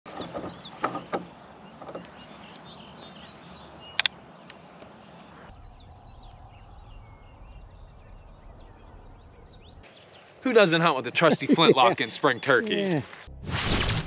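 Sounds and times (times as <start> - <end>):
songbirds chirping and singing: 0.1 - 11.2
sharp clicks: 4.0 - 4.6.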